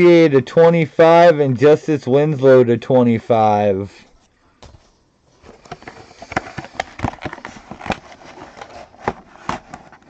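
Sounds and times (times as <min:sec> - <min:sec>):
cards and packaging handled: 0:04.6 - 0:10.0.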